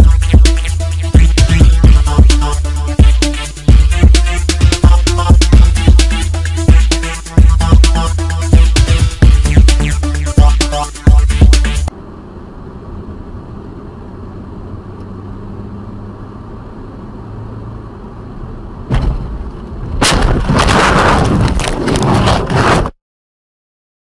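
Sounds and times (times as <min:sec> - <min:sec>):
car rumbling on road: 0:11.4 - 0:22.1
vehicle collision bang: 0:18.9 - 0:22.7
harsh crashing noise: 0:18.9 - 0:23.0.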